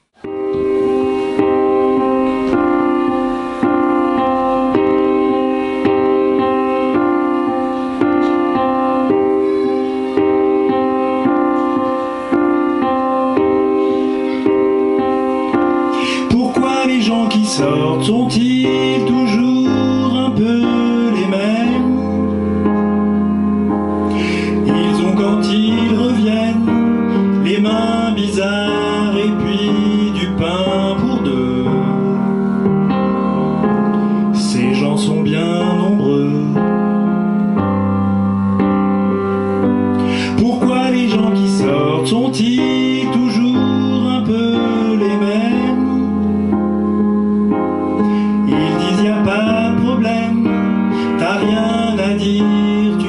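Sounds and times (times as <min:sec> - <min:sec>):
piano backing track: 0:00.0 - 0:53.0
man singing into microphone: 0:15.5 - 0:23.2, 0:24.1 - 0:32.8, 0:33.8 - 0:37.4, 0:40.0 - 0:46.6, 0:48.1 - 0:53.0.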